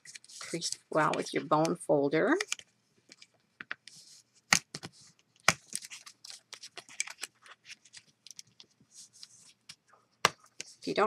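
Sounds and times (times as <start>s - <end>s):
paper rustling: 0.0s - 1.5s, 3.9s - 9.8s.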